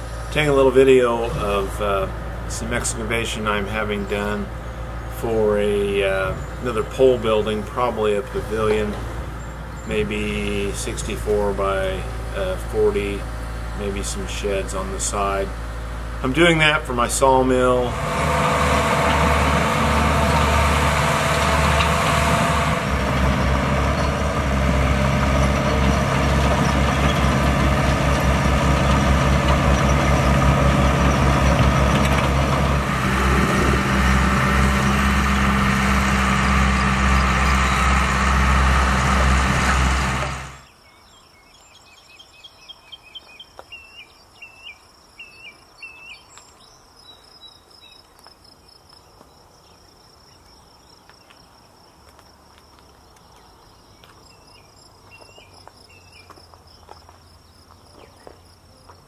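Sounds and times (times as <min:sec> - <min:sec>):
diesel engines of digging machines: 0:00.0 - 0:40.7.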